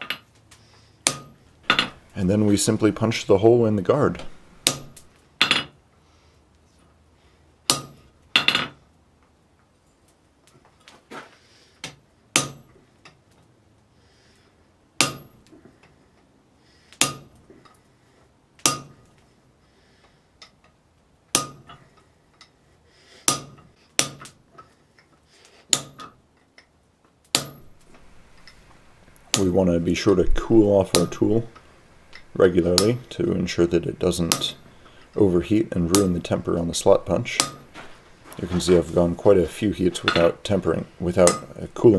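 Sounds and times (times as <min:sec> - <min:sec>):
hammer striking punch on hot steel: 0:01.0 - 0:02.0, 0:04.6 - 0:05.7, 0:07.7 - 0:08.7, 0:12.3 - 0:12.8, 0:15.0 - 0:15.5, 0:17.0 - 0:17.4, 0:18.6 - 0:19.1, 0:21.3 - 0:21.8, 0:23.2 - 0:24.4, 0:25.7 - 0:26.1, 0:27.3 - 0:27.8, 0:37.4 - 0:37.8, 0:41.2 - 0:41.5.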